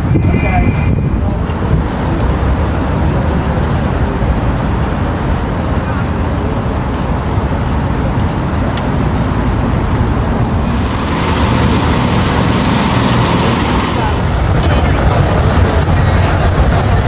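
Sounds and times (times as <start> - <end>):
tyre and road noise: 0.0 - 17.0
wind on microphone: 0.0 - 17.0
high hiss: 10.6 - 14.5.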